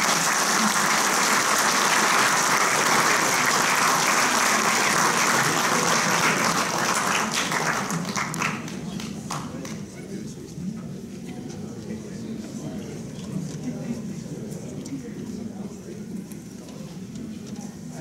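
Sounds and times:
audience applauding: 0:00.0 - 0:09.8.

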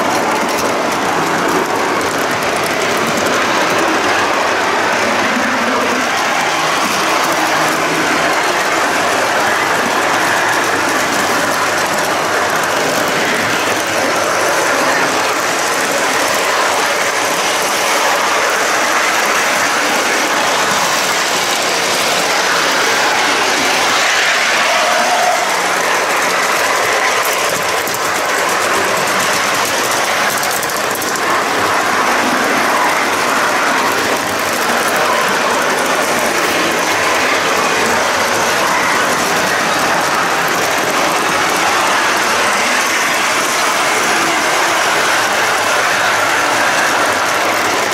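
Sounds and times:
model train wheels rattling: 0:00.0 - 0:47.9.

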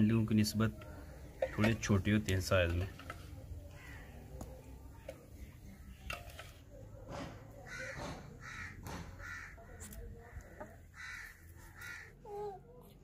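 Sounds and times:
crow cawing: 0:03.7 - 0:04.2, 0:07.6 - 0:09.8, 0:10.5 - 0:12.2.

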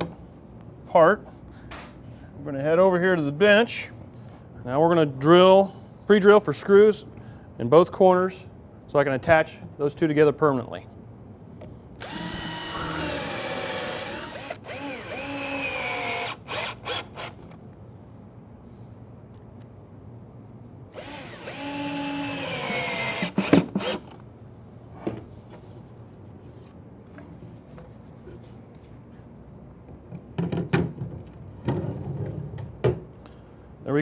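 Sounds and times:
cordless drill motor whine: 0:12.0 - 0:17.4, 0:21.0 - 0:24.0.

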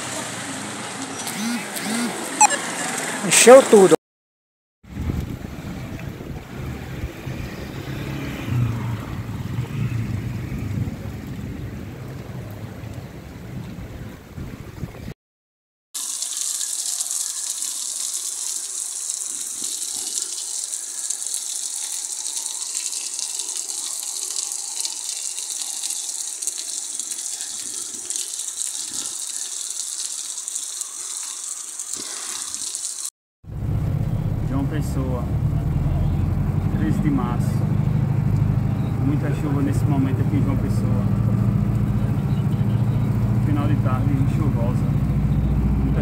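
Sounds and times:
heavy rain pouring: 0:00.0 - 0:03.9, 0:04.9 - 0:13.5, 0:16.0 - 0:46.0
low rumbling noise: 0:33.5 - 0:46.0.

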